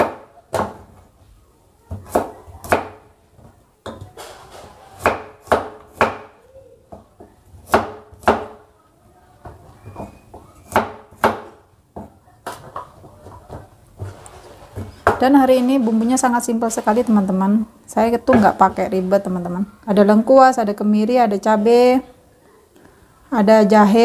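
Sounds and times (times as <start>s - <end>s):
cleaver chopping on wooden board: 5.0s - 6.3s.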